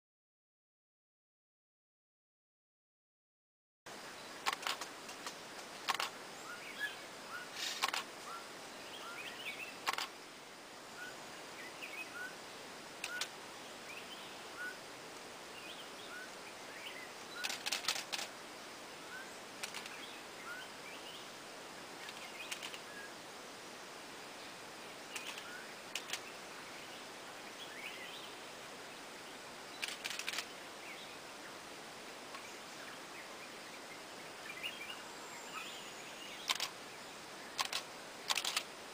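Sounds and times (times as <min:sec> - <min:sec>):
background hiss: 0:03.9 - 0:38.9
camera shutters clicking: 0:04.4 - 0:04.9, 0:05.9 - 0:06.1, 0:07.6 - 0:08.1, 0:09.8 - 0:10.1, 0:17.4 - 0:18.3, 0:25.2 - 0:26.2, 0:29.8 - 0:30.5, 0:36.5 - 0:36.7, 0:37.6 - 0:38.7.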